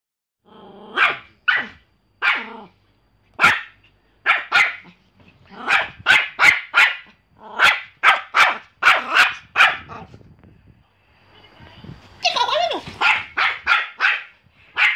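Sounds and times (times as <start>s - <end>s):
small dog barking: 0.9s - 2.7s, 3.4s - 10.1s, 12.9s - 14.9s.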